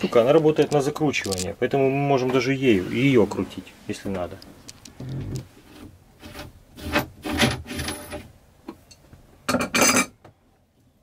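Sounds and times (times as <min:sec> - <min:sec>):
tools scraping and rubbing: 0:02.3 - 0:08.3.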